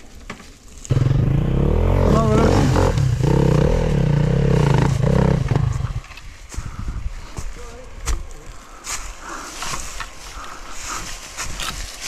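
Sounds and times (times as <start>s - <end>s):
dirt bike engine revving: 0.9s - 6.0s.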